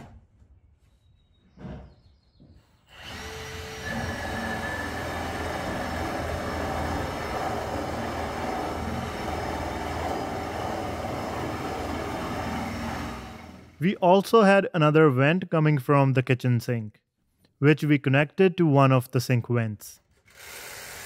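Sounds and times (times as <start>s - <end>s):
cordless drill boring through wood: 2.9s - 13.8s, 20.2s - 21.0s.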